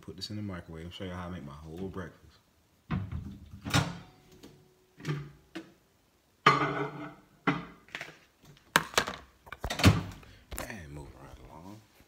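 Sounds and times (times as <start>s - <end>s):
plate knocks and clatters: 6.4s - 8.1s.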